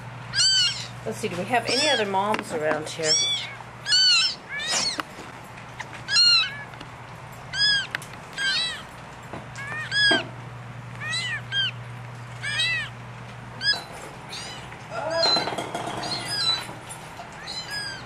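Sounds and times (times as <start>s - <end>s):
kittens mewing: 0.3s - 1.0s, 1.6s - 2.2s, 2.9s - 5.1s, 5.8s - 6.8s, 7.5s - 8.9s, 9.5s - 13.0s, 13.6s - 18.0s.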